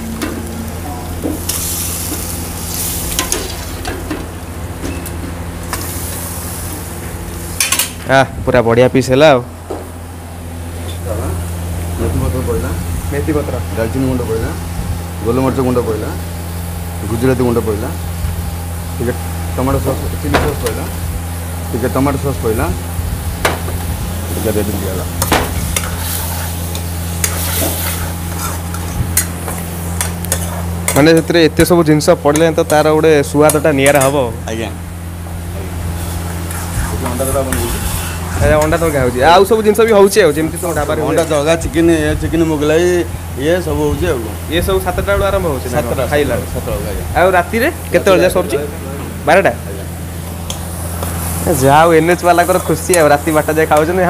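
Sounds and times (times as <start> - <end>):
food sizzling in oil: 0.0 - 8.0, 11.4 - 41.7, 50.0 - 54.0
steady low hum: 0.0 - 54.0
metal ladle scraping a pan: 27.2 - 29.0.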